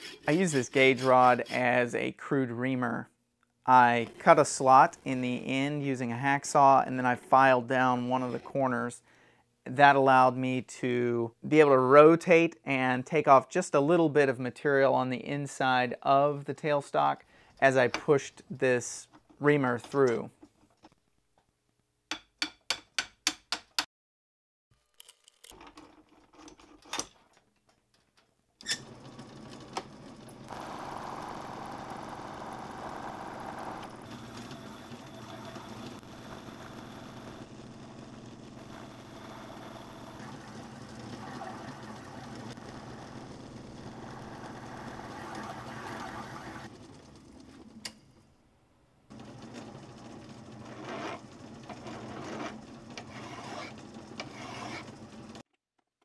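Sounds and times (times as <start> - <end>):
metal lathe running: 0.0 - 1.6, 30.1 - 46.7, 49.2 - 55.4
lathe tool cutting steel: 0.0 - 1.7, 50.7 - 55.0
metal rod scraping strokes: 0.0 - 1.9, 51.8 - 55.0.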